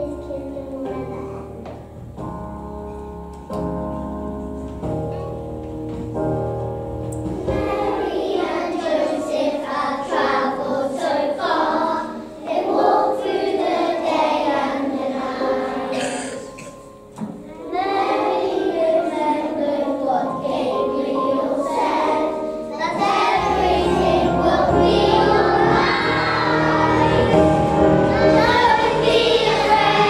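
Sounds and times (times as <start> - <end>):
held musical chords: 0.0 - 30.0
young children singing: 7.3 - 30.0.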